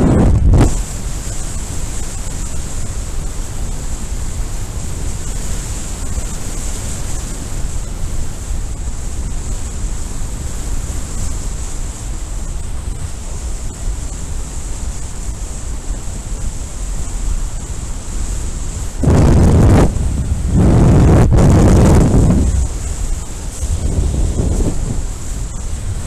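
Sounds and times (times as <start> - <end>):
wind buffeting microphone: 0.0 - 9.7, 18.5 - 26.0.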